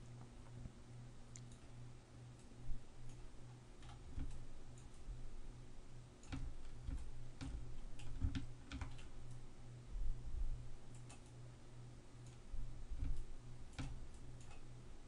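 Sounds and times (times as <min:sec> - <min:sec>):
low electrical hum: 0:00.0 - 0:15.0
computer mouse clicking: 0:03.8 - 0:05.1, 0:06.2 - 0:09.4, 0:10.9 - 0:11.4, 0:13.0 - 0:14.7.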